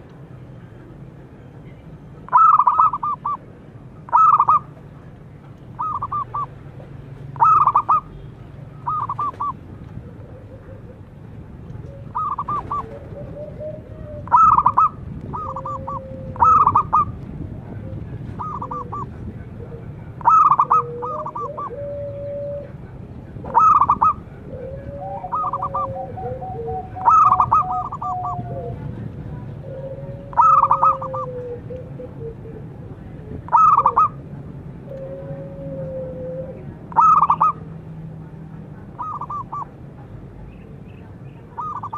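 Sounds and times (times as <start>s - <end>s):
dove staccato cooing: 2.3s - 3.4s, 4.1s - 4.7s, 5.8s - 6.5s, 7.3s - 8.2s, 8.8s - 34.2s, 34.9s - 37.6s, 38.9s - 39.8s, 41.6s - 41.9s.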